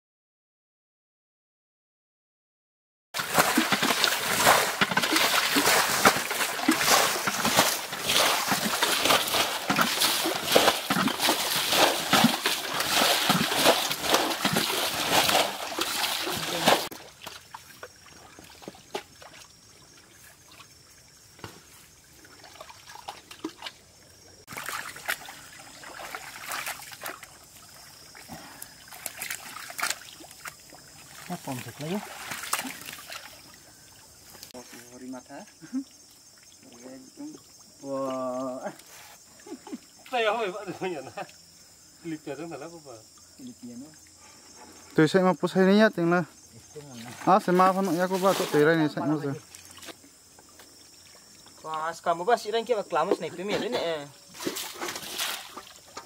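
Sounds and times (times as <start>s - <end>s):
splashing in muddy water: 3.2s - 23.8s, 24.4s - 34.6s, 46.7s - 50.1s, 53.6s - 56.0s.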